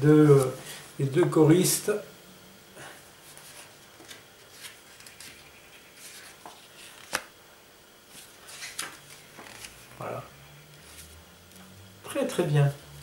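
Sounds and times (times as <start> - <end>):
paper rustling: 3.2 - 5.4, 6.0 - 7.3, 8.1 - 10.0.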